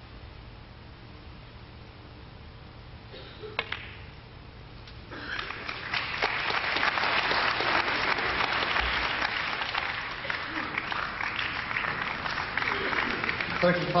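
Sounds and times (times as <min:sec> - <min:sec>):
audience applause: 0:05.3 - 0:14.0.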